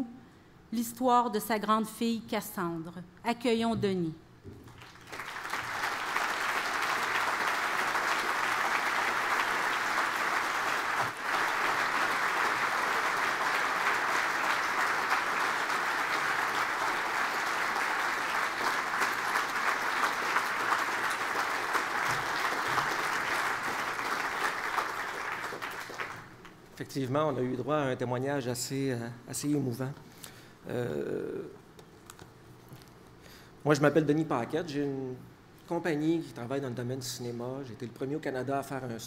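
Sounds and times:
audience applauding: 0:04.6 - 0:26.6.

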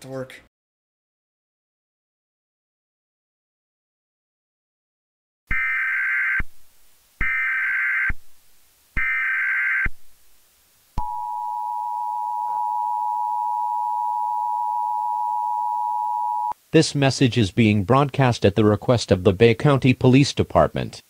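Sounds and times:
two-tone attention signal: 0:11.0 - 0:16.5.

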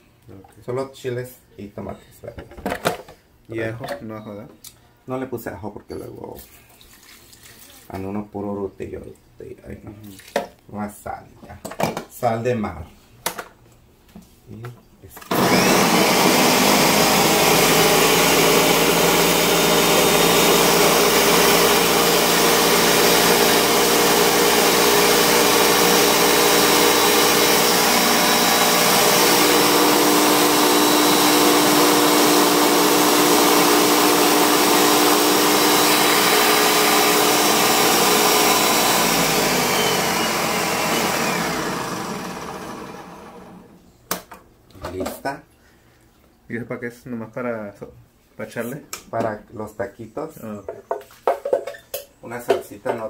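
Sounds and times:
blender running: 0:15.3 - 0:43.8.

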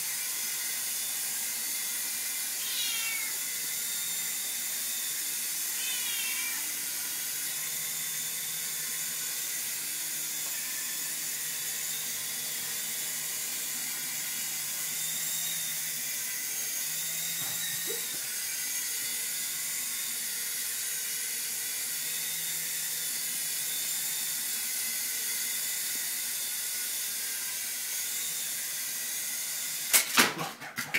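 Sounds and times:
toy helicopter motor whining: 0:00.0 - 0:30.2.

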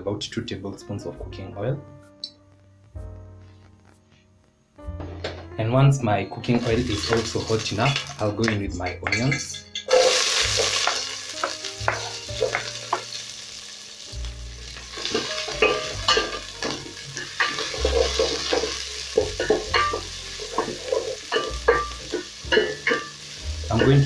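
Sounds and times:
onions sizzling in hot oil: 0:06.6 - 0:08.3, 0:09.8 - 0:24.0.

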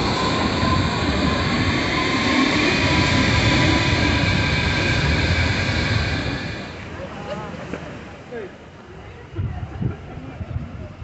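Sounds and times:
high whine: 0:00.0 - 0:07.0
train rumbling: 0:00.0 - 0:08.1.

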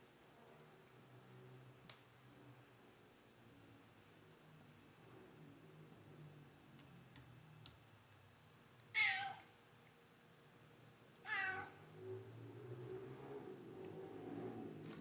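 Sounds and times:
cat meowing: 0:08.9 - 0:09.5, 0:11.2 - 0:11.9.

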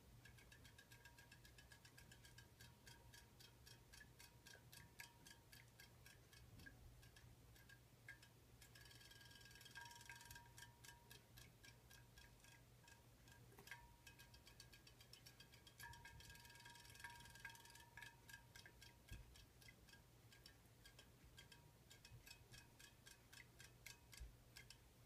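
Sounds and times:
rapid mechanical ticking: 0:00.0 - 0:25.0.

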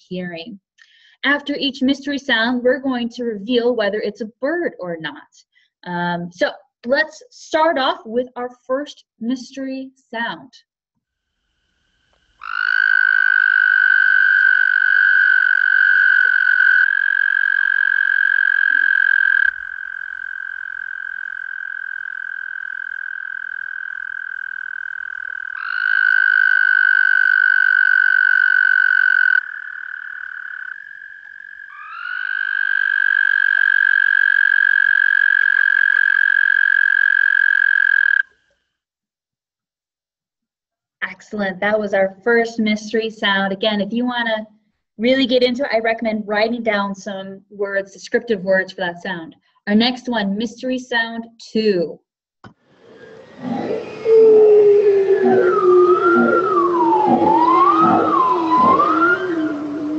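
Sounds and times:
frogs trilling: 0:12.4 - 0:38.4, 0:53.0 - 0:59.9.

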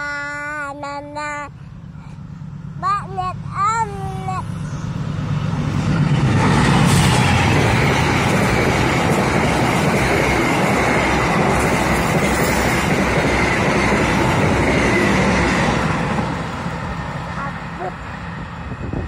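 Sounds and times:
locomotive engine hum: 0:00.0 - 0:19.0
train wheels rumbling on rails: 0:01.6 - 0:19.0.

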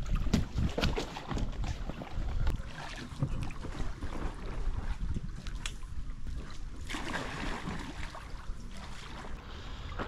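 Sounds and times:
wind buffeting microphone: 0:00.0 - 0:06.9.

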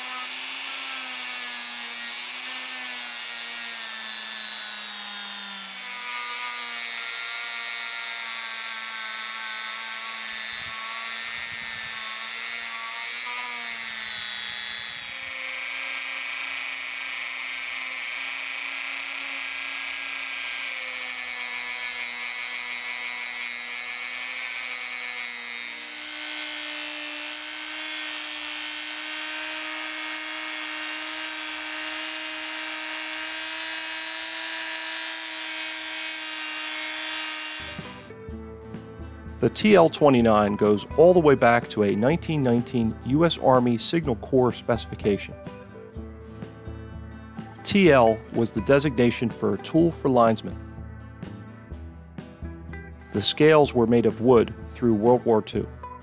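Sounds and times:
rotary tool motor whine: 0:00.0 - 0:38.2.

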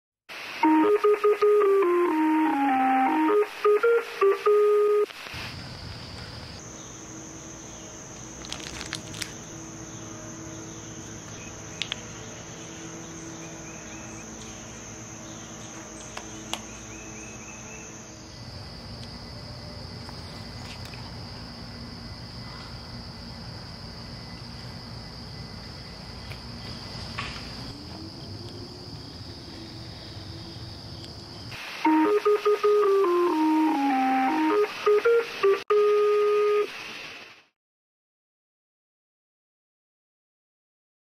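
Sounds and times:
electronic jingle: 0:00.6 - 0:05.1
insects chirring: 0:00.6 - 0:37.2.

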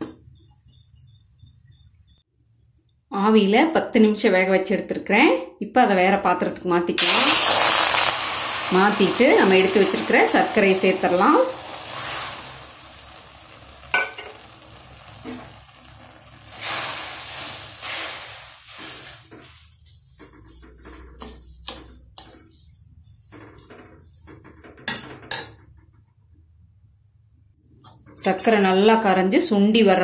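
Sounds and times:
pan sizzling: 0:07.0 - 0:25.6
ladle scraping a pan: 0:16.5 - 0:25.6, 0:28.2 - 0:28.8.

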